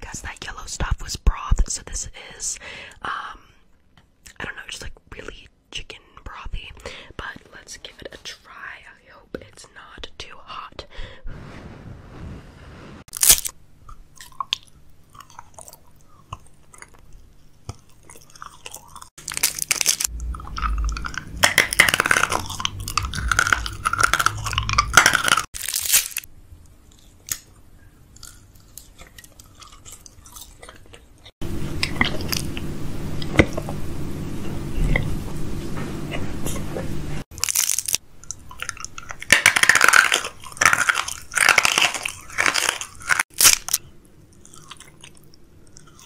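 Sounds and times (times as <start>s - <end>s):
steady low hum: 10.8s - 25.5s, 26.3s - 39.4s
crunching and chewing food: 13.1s - 32.6s, 37.3s - 46.0s.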